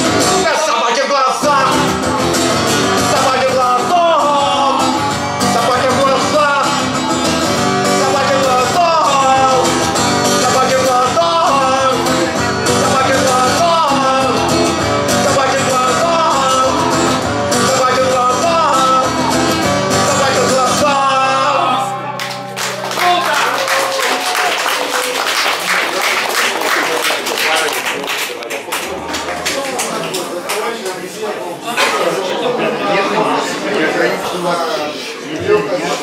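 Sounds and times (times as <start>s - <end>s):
strummed acoustic guitar: 0.0s - 23.2s
man singing: 0.2s - 22.3s.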